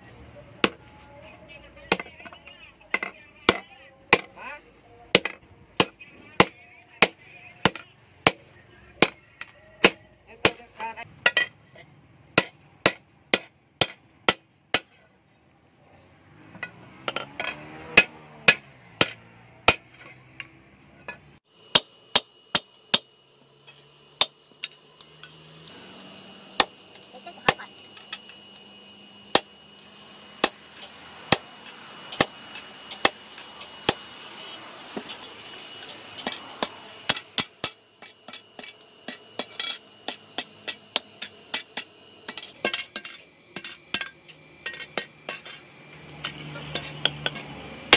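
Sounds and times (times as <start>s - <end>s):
steady high hum: 21.3s - 47.9s.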